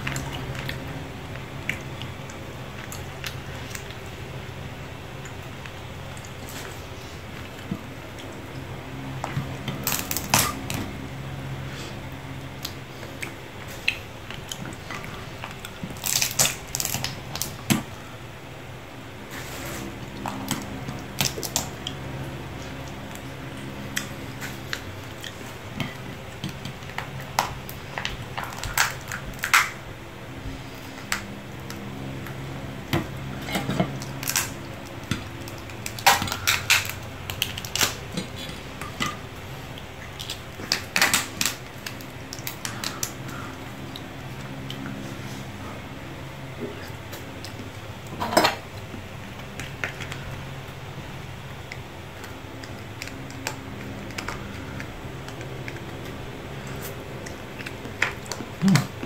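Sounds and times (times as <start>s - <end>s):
lobster shell cracking: 9.8s - 10.8s, 15.4s - 17.9s, 26.4s - 29.8s, 33.9s - 39.2s, 40.2s - 43.5s.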